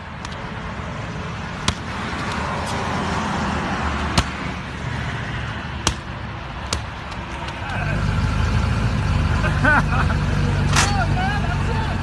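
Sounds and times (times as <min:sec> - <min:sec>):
watermelon thudding on concrete: 0:01.6 - 0:02.4, 0:04.1 - 0:04.5.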